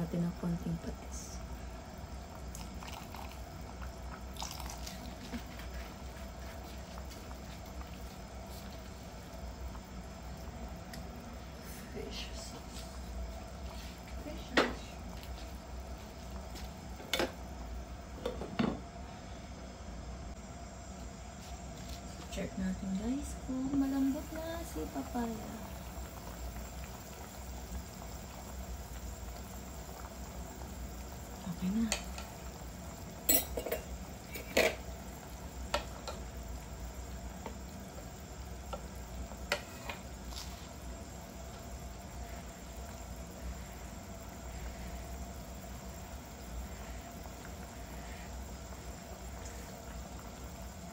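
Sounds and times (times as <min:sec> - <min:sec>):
soup bubbling: 0:01.4 - 0:11.7, 0:23.6 - 0:50.9
utensils clinking against pot: 0:33.3 - 0:34.8.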